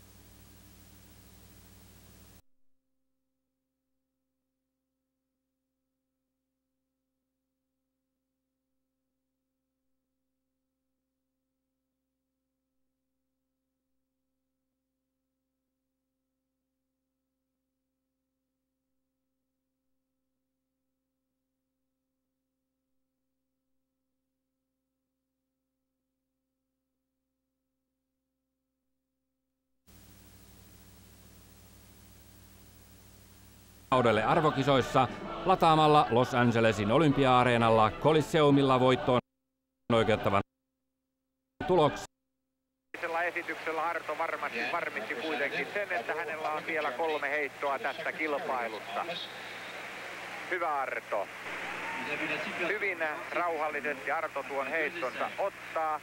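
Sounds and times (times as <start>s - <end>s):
faint electrical hum: 0.0s - 2.4s, 29.9s - 34.0s
tape hiss and hum: 0.0s - 2.4s, 29.9s - 36.1s, 43.0s - 56.0s.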